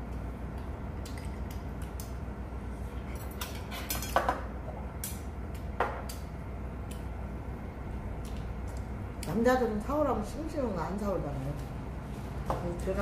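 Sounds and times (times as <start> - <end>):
utensils clinking against dishes: 3.1 - 4.4.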